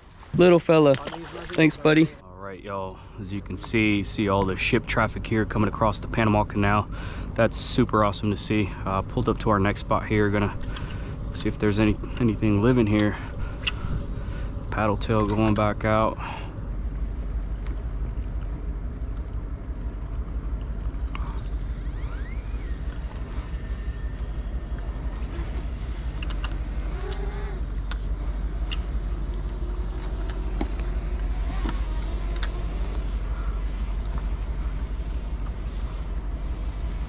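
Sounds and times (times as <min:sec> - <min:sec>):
steady low rumble: 0:00.0 - 0:37.0.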